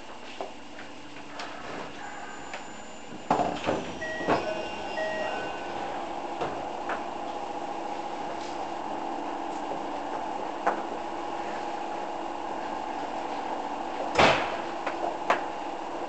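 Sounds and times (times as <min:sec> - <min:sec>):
train humming: 0:00.0 - 0:14.1
train doors clunking: 0:01.4 - 0:07.1
two-pitch door chime beeps: 0:04.0 - 0:05.9.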